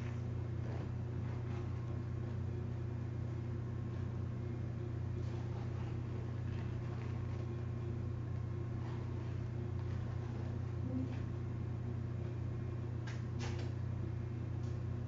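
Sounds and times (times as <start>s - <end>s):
steady low hum: 0.0s - 15.0s
tape rustling: 5.2s - 7.8s.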